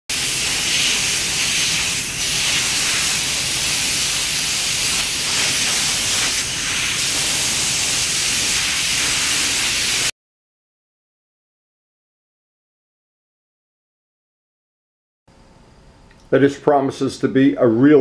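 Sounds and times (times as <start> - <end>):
paint spray gun hissing: 0.1 - 10.1.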